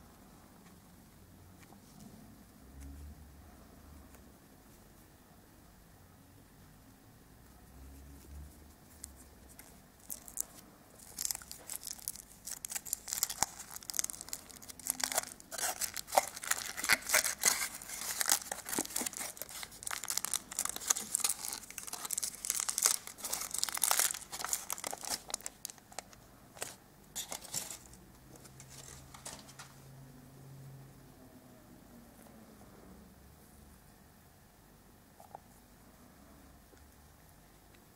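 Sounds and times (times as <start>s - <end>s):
foil wrapper crinkling and tearing: 9.6s - 28.0s, 28.6s - 29.6s.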